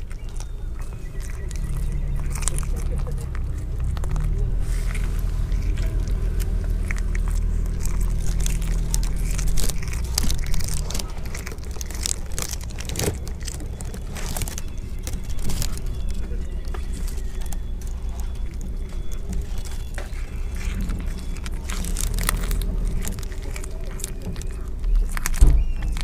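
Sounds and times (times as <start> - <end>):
cat chewing with crunches: 0.0 - 26.0
steady low rumble: 0.0 - 26.0.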